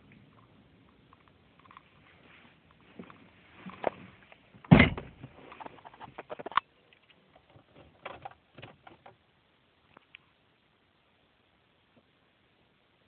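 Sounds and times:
clicks and rustles of handling: 0.2s - 9.2s
car door thump: 4.7s - 5.2s.

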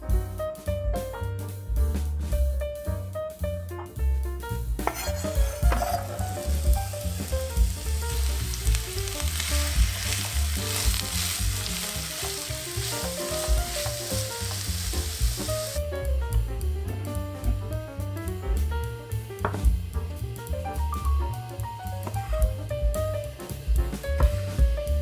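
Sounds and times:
soft background music: 0.0s - 25.0s
onion sizzling in oil: 4.8s - 18.0s, 18.6s - 25.0s.

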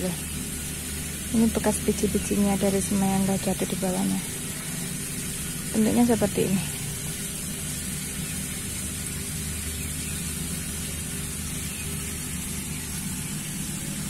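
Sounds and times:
low hum: 0.0s - 14.0s
steady hiss: 0.0s - 14.0s.

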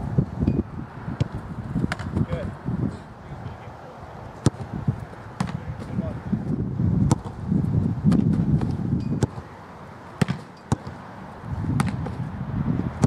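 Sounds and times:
soccer ball struck thuds: 0.4s - 2.5s, 4.4s - 9.5s, 10.2s - 13.0s.

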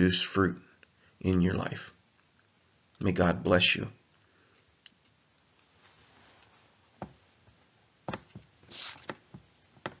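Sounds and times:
brief hiss: 8.7s - 9.2s.

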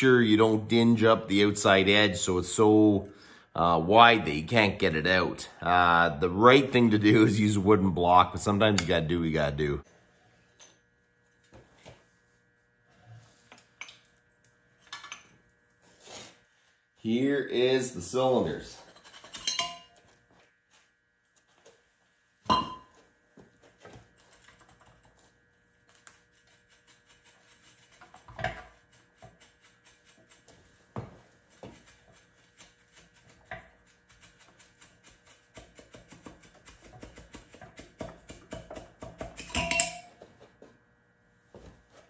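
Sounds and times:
metal knocks and clinks: 19.2s - 20.0s, 39.4s - 40.2s.

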